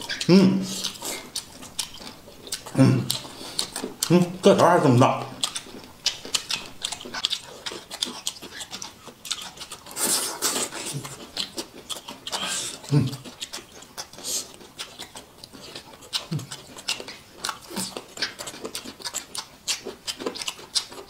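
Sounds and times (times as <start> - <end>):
wet chewing: 0.0 - 21.0
sucking slurps: 9.6 - 11.3.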